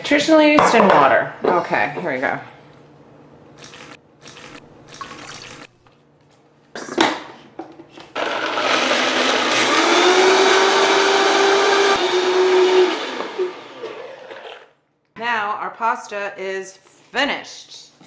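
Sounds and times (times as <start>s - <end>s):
blender motor running: 8.2s - 14.7s.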